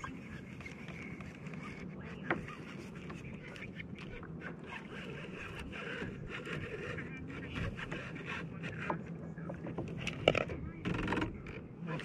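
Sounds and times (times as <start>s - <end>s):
water sloshing against kayak hull: 0.0s - 12.0s.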